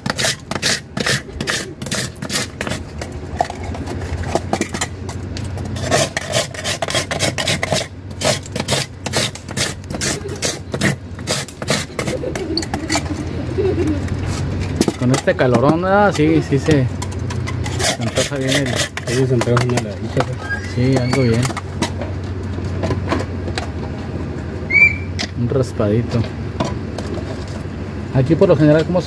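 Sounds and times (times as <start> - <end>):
metal scraper shaving ice: 0.0 - 4.9, 5.6 - 13.2, 14.3 - 21.9.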